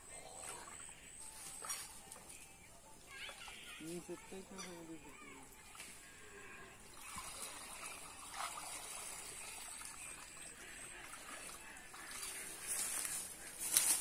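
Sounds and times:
water trickling and dripping: 0:03.6 - 0:13.8
wading splashes: 0:06.8 - 0:14.0
short splashes or rustles: 0:07.0 - 0:09.5.

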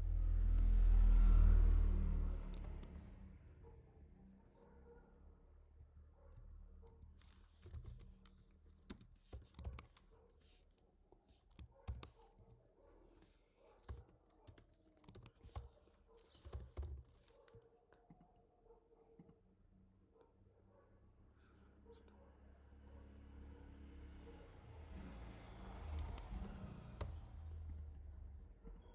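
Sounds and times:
faint keyboard typing: 0:02.5 - 0:03.0, 0:06.8 - 0:18.4, 0:25.8 - 0:28.9.

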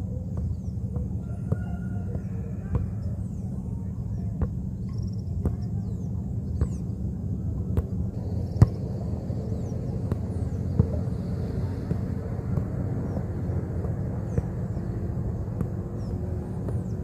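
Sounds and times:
birds chirping: 0:00.0 - 0:17.0
football thudding on foot: 0:08.6 - 0:08.8, 0:10.0 - 0:11.0.

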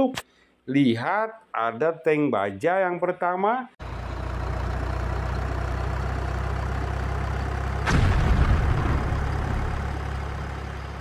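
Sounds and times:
tank engine rumbling: 0:03.8 - 0:11.0
tank cannon shot: 0:07.8 - 0:10.5.

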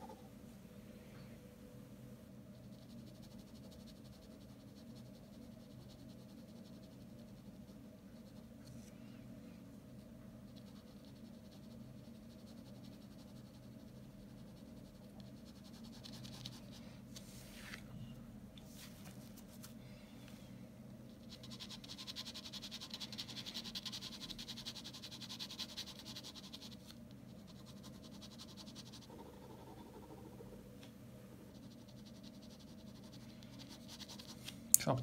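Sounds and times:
low steady hum: 0:00.0 - 0:35.0
pen scratching on paper: 0:21.1 - 0:29.1, 0:31.5 - 0:34.4.

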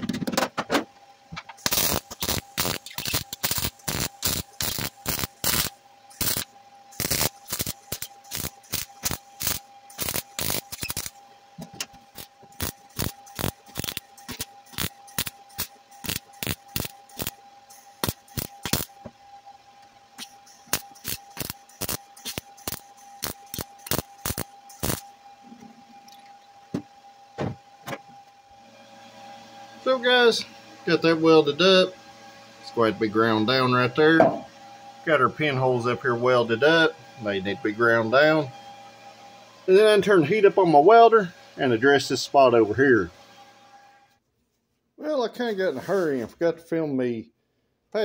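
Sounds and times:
welder crackling bursts: 0:01.6 - 0:11.2, 0:12.0 - 0:19.0, 0:20.2 - 0:25.1.

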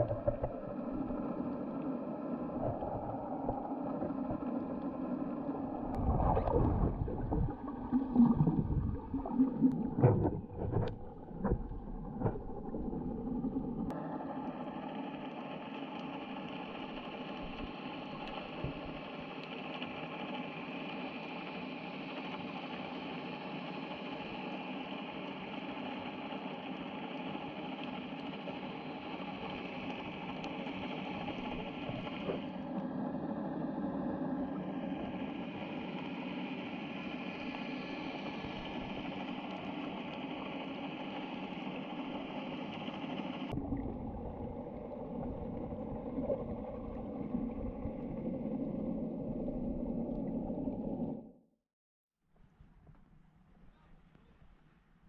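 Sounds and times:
low thumps and water swishes: 0:00.0 - 0:01.8, 0:02.5 - 0:13.9, 0:17.4 - 0:19.0, 0:43.5 - 0:51.3
underwater hum: 0:00.0 - 0:51.5.

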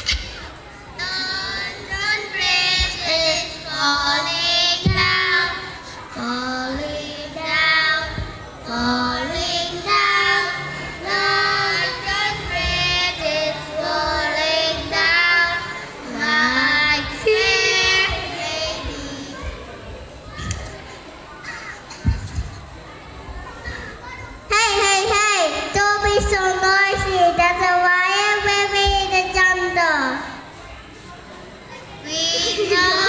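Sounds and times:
child singing into a microphone: 0:01.0 - 0:19.6, 0:24.5 - 0:30.2.

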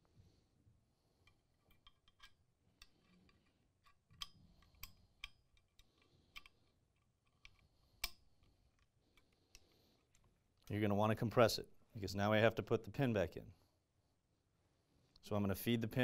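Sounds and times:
small metal parts clicking: 0:01.2 - 0:10.3.

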